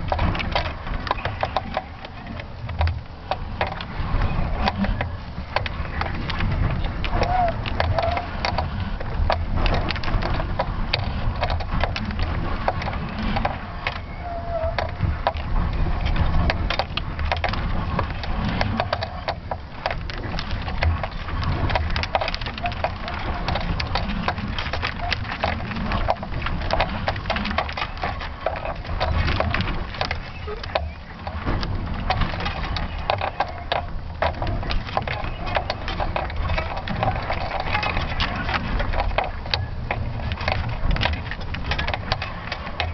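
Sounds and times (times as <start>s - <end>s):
crackling and knocking: 0.0s - 42.9s
wind buffeting microphone: 0.0s - 42.9s.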